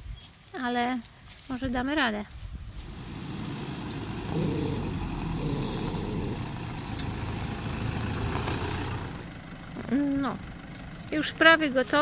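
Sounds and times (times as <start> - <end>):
truck engine at low revs: 2.7 - 12.0.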